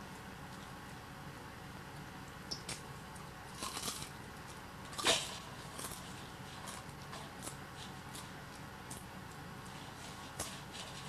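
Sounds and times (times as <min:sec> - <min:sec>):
faint low hum: 0:00.0 - 0:11.0
popcorn crunching: 0:02.5 - 0:11.0.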